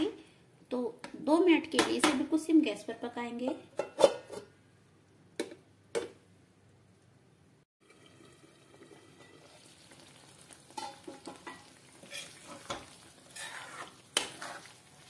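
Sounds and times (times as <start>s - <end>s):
gravy sizzling in a pan: 7.9s - 15.0s
spoon scraping metal pan: 10.8s - 15.0s.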